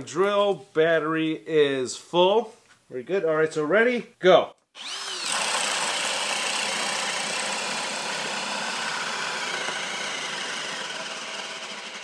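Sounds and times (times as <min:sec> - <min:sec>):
cordless drill boring into wood: 0:04.8 - 0:12.0.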